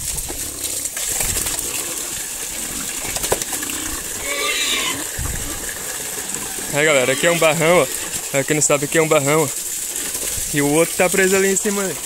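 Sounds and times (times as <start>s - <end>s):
liquid pouring from a hose: 0.0s - 12.0s
pigs slurping: 0.0s - 12.0s
pig squeal: 3.6s - 8.2s.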